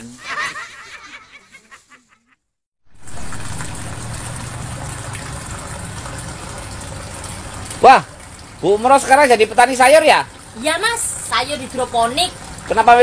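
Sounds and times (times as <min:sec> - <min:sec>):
water flowing through pipes: 0:02.8 - 0:13.0
pump humming: 0:02.9 - 0:13.0.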